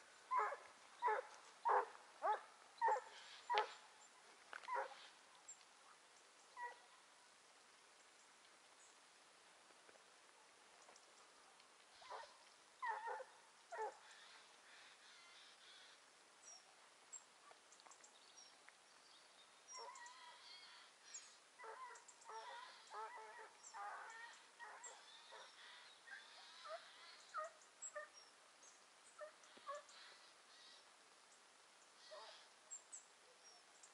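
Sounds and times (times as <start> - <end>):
hounds baying in the distance: 0.3 - 3.9, 4.5 - 5.1, 6.6 - 7.0, 11.9 - 14.4, 19.7 - 20.6, 21.6 - 28.3, 29.2 - 30.1, 32.0 - 32.5.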